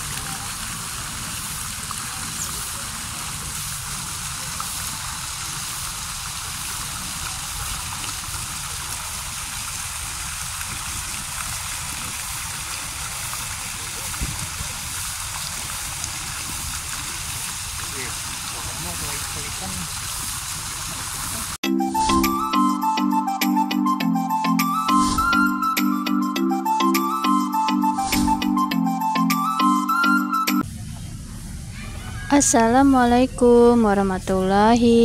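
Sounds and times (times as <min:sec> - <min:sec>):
fountain jets splashing into pond: 0:00.0 - 0:21.6.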